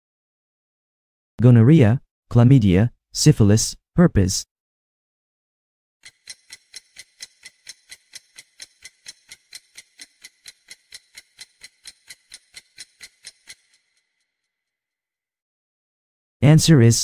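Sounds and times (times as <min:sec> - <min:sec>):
clock ticking: 0:06.0 - 0:14.0.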